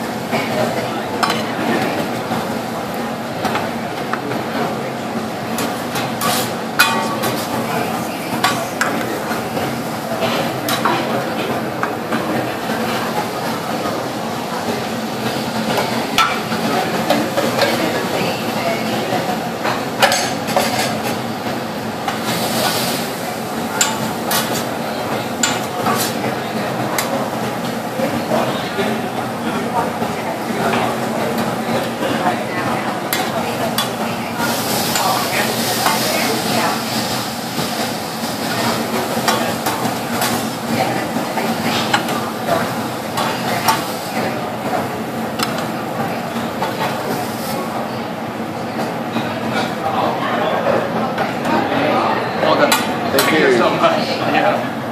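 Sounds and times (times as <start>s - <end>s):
food sizzling: 0.0s - 48.0s
spatula scraping hot griddle: 6.2s - 7.5s.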